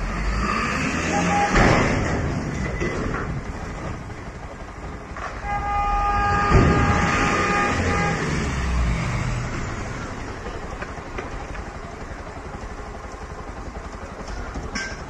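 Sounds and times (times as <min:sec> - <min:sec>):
truck engine rumble: 0:00.0 - 0:15.0
vehicle horn: 0:01.0 - 0:01.8, 0:05.3 - 0:08.9.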